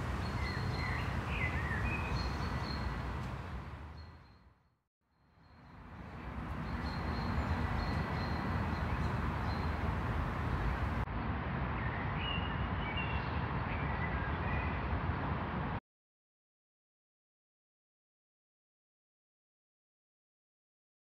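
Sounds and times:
road and wind noise from vehicle: 0.0s - 15.8s.

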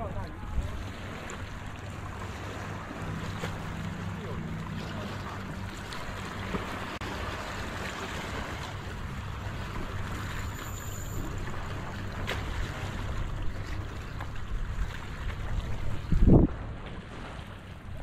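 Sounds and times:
water lapping at rocky shore: 0.0s - 18.0s
wind rumble on microphone: 11.2s - 18.0s.

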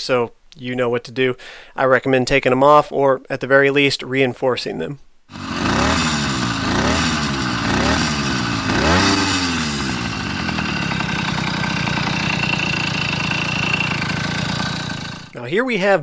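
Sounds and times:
two-stroke engine revving and idling: 5.3s - 15.4s.

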